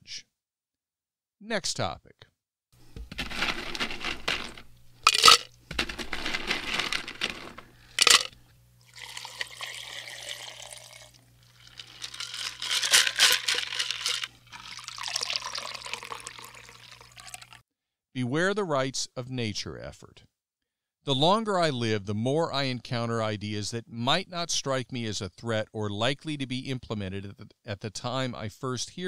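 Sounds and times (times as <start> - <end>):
drink pouring into glass: 5.1 - 5.5, 8.0 - 17.6.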